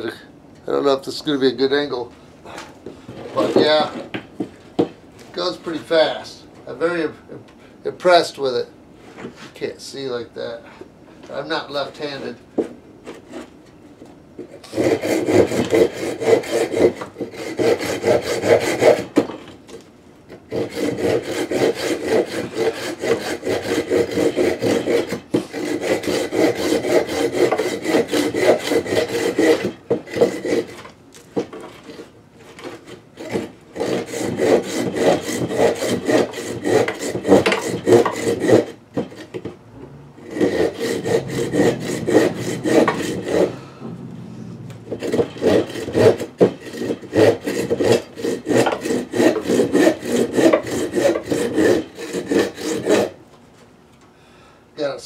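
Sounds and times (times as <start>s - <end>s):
hand saw cutting wood: 3.1s - 4.2s, 11.3s - 53.2s.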